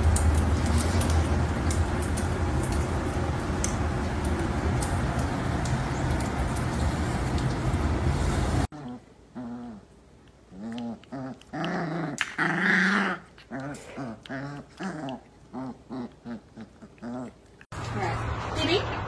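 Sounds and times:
animal growling whines: 8.8 - 9.9
loud rushing noise: 17.8 - 19.0.

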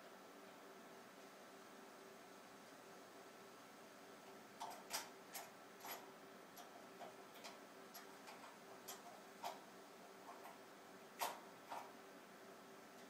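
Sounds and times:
faint steady hum: 0.0 - 13.0
faint irregular clicks and taps: 4.2 - 10.6, 11.2 - 12.0.

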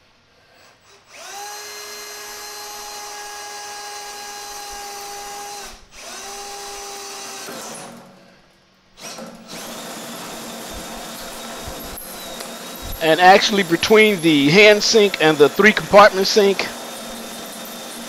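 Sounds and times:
power drill motor whine: 0.8 - 7.8, 9.0 - 13.0, 16.7 - 18.0
hole saw cutting metal: 9.1 - 15.6, 16.7 - 18.0.

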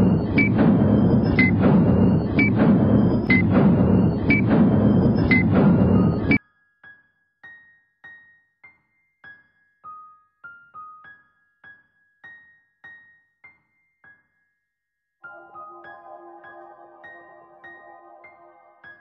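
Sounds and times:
soft high piano notes: 15.2 - 19.0.

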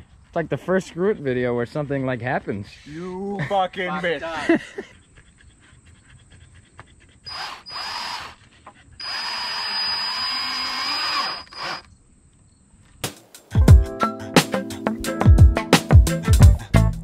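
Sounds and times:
cordless drill driving screw: 7.3 - 8.4, 9.0 - 11.9.

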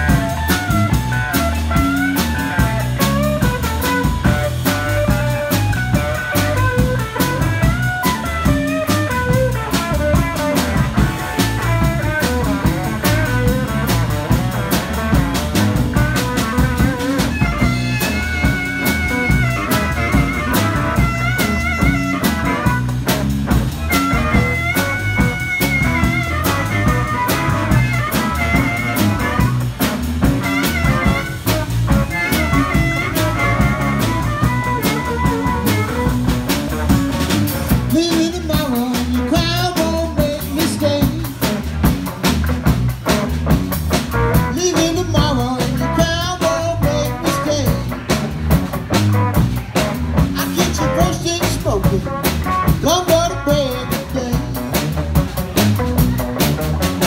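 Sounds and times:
blues band playing live: 0.0 - 57.0
harmonica solo: 17.0 - 23.0, 23.8 - 29.7, 30.3 - 36.2.

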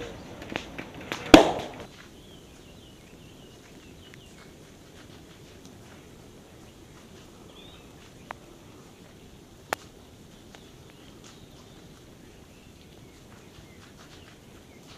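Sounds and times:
soft steady hiss: 0.0 - 14.9
faint bird chirps: 1.9 - 4.9, 6.0 - 14.9.

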